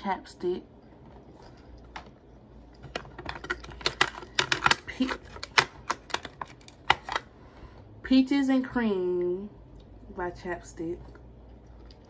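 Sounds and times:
plastic tubes clicking together: 2.8s - 7.2s.

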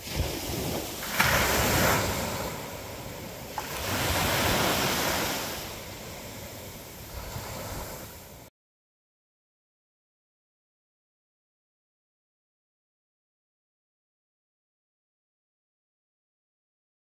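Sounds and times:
waves breaking on a beach: 0.0s - 8.5s.

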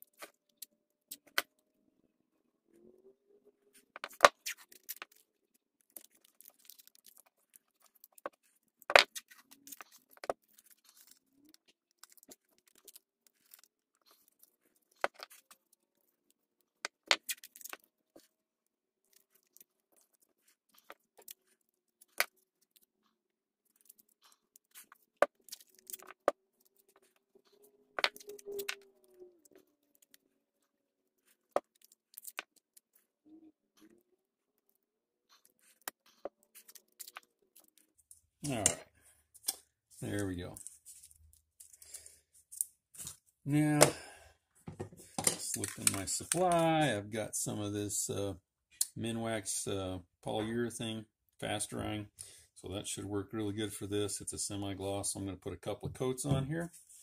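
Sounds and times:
tape crackling and clicking: 0.0s - 1.6s, 3.7s - 46.9s.

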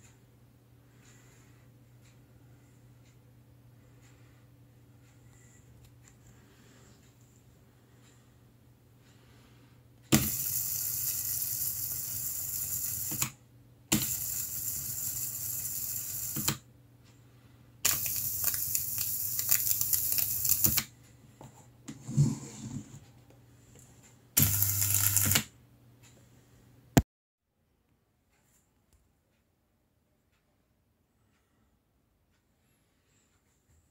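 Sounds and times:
tesla coil buzzing hiss: 24.4s - 25.4s.

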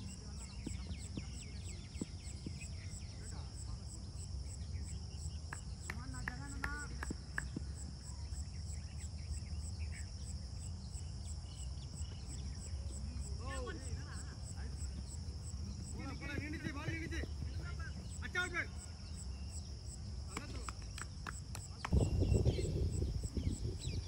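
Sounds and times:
insects trilling: 0.0s - 24.0s
pulsed insect chirp: 0.0s - 24.0s
wind rumble on microphone: 20.8s - 24.0s.

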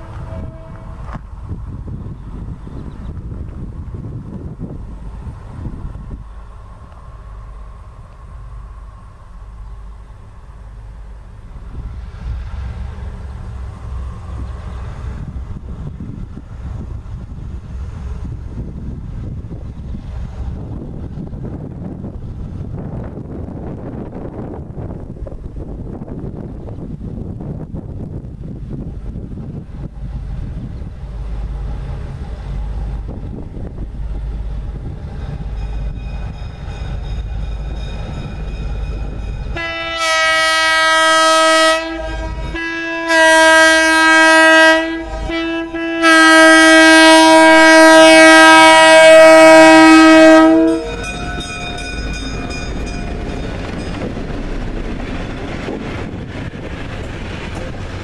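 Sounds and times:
train horn chord: 0.0s - 1.2s, 39.5s - 53.0s
distant passenger train rumble: 0.0s - 58.0s
wind buffeting microphone: 0.0s - 58.0s.

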